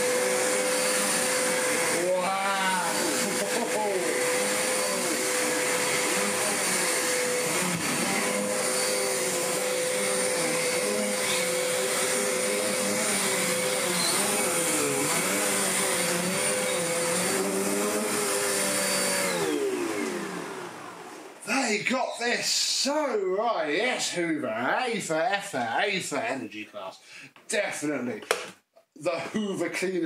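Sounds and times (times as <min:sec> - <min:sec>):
vacuum cleaner running on a rug: 0:00.0 - 0:21.4.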